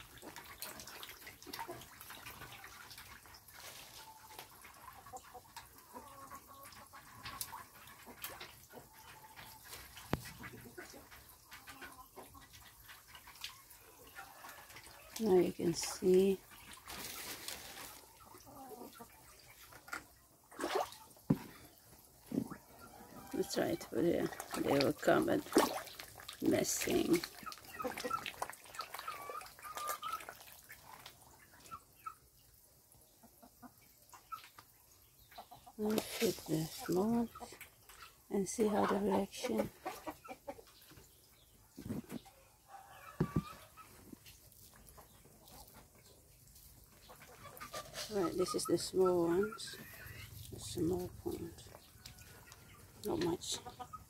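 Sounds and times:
chickens clucking: 0:00.0 - 0:25.8, 0:26.4 - 0:54.0
fish splashing at water surface: 0:24.4 - 0:31.2.

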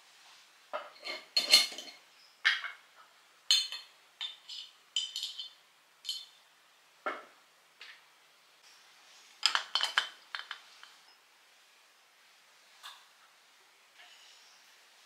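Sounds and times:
spoon clinking against glass jar: 0:03.5 - 0:06.4.

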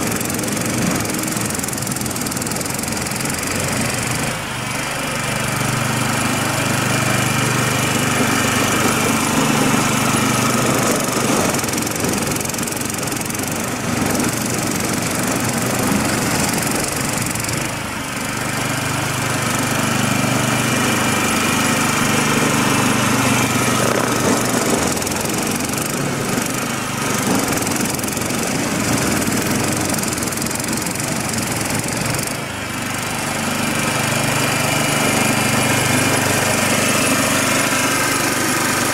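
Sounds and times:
small engine running: 0:00.0 - 0:38.9.

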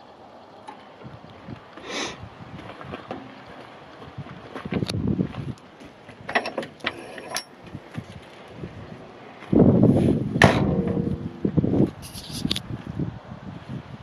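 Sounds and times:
wind on microphone: 0:01.0 - 0:06.4, 0:07.6 - 0:14.0
metal hinges and latch rattling: 0:06.3 - 0:07.6, 0:10.4 - 0:11.5
metal door banging shut: 0:10.4 - 0:11.4.

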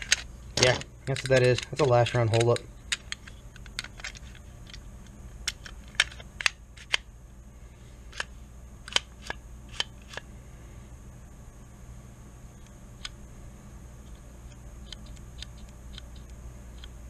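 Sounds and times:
gun parts clicking: 0:00.0 - 0:04.8.

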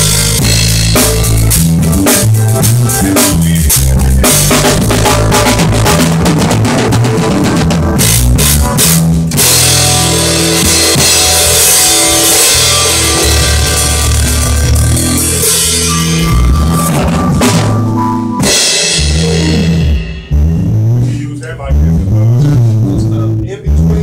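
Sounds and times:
bass drum hits: 0:00.0 - 0:24.0
low bass notes: 0:00.0 - 0:24.0
rock music: 0:00.0 - 0:24.0
cymbals: 0:09.4 - 0:21.4.

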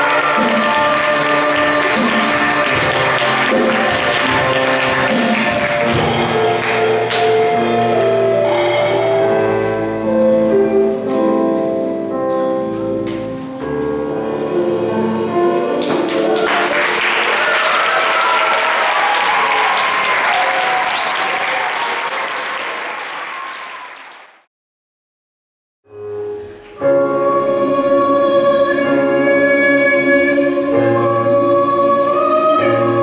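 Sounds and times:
audience applauding: 0:00.0 - 0:07.8, 0:15.8 - 0:24.5
choir singing with accompaniment: 0:00.0 - 0:10.7, 0:13.9 - 0:18.1, 0:26.9 - 0:33.0.

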